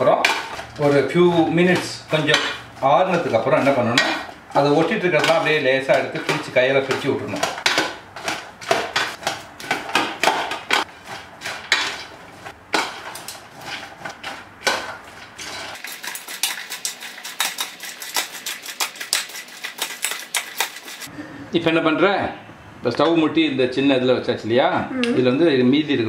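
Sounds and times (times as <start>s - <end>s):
popcorn rustling: 0.0s - 21.1s
spoons scraping a steel plate: 15.1s - 21.1s.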